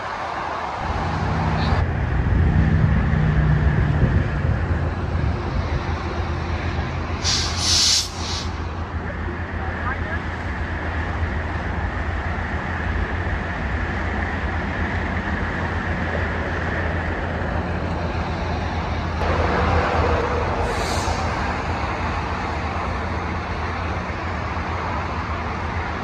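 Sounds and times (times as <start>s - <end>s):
train low rumble: 0.0s - 26.0s
short high hiss: 7.2s - 8.6s.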